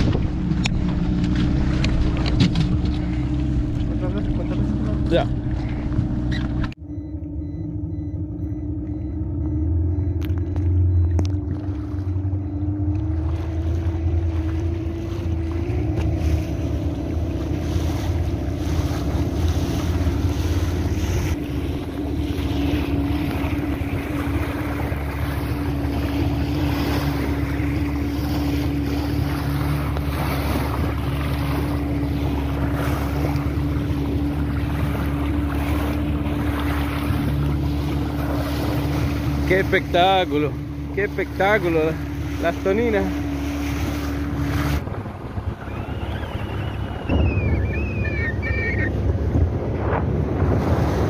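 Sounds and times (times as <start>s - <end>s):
water rushing past: 0.0s - 6.7s, 10.6s - 51.0s
boat motor running: 0.0s - 51.0s
wind buffeting microphone: 43.2s - 51.0s.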